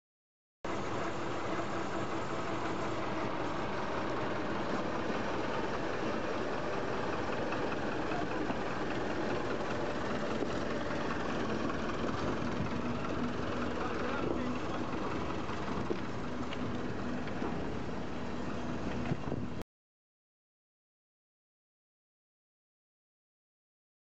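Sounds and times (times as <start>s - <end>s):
diesel locomotive engine idling: 0.7s - 19.6s.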